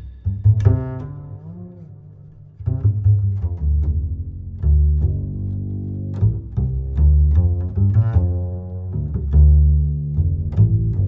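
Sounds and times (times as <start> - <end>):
music with deep bass line: 0.0 - 11.0.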